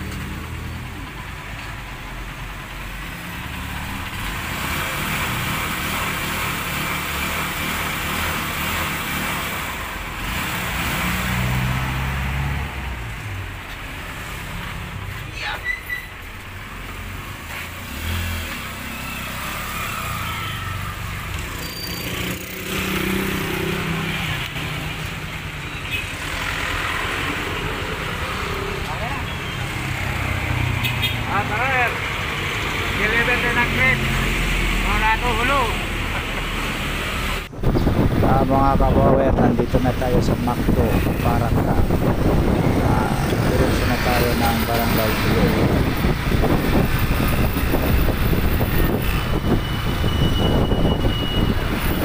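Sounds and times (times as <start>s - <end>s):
street traffic noise: 0.0s - 52.0s
motorcycle engine revving: 16.8s - 25.4s, 26.0s - 52.0s.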